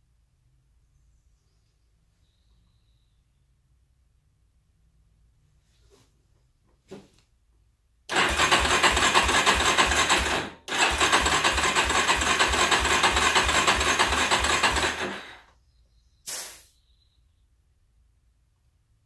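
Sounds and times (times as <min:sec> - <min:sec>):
starter cranking engine: 0:08.1 - 0:15.5
brief hiss: 0:16.2 - 0:16.8.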